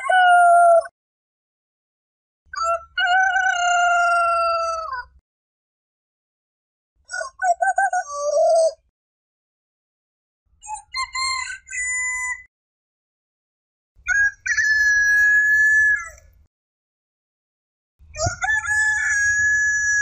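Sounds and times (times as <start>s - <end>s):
roosters crowing: 2.6s - 5.1s, 14.1s - 16.2s, 18.1s - 20.0s.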